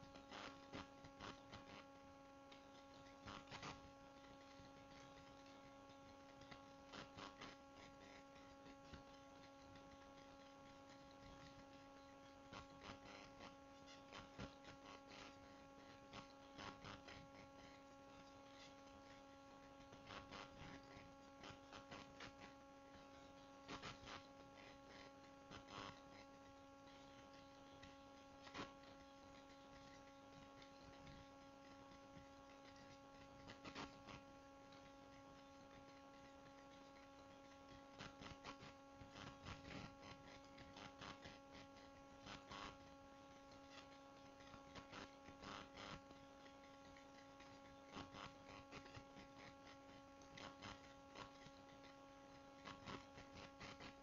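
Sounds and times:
faint electrical hum: 0.0 - 54.0.

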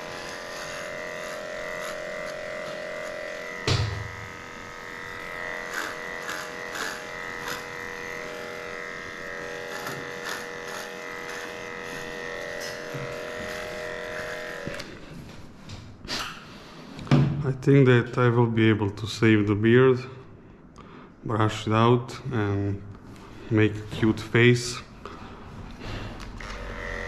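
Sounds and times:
electric clipper humming: 0.0 - 15.0, 26.2 - 27.0
loud knock: 3.6 - 4.1.

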